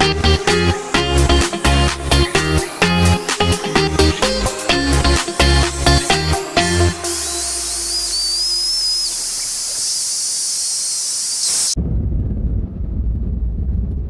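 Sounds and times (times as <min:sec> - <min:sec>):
high hiss: 0:00.4 - 0:11.8
thin wavering whistle: 0:07.0 - 0:11.8.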